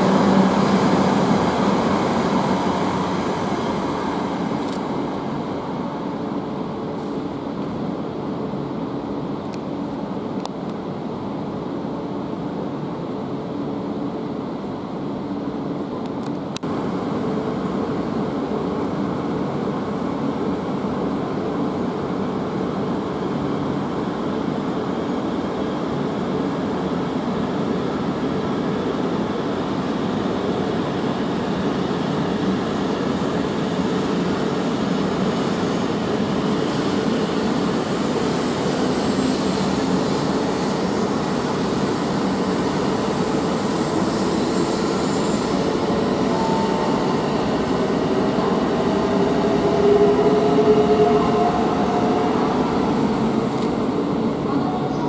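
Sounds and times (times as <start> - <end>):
train humming drone: 0.0 - 55.0
train wheels rumbling on rail: 0.0 - 55.0.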